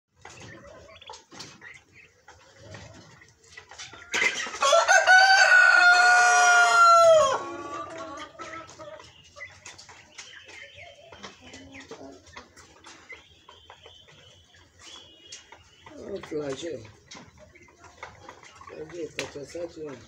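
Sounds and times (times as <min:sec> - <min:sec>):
young chickens cheeping: 0:00.1 - 0:20.0
rooster crowing: 0:04.6 - 0:08.2.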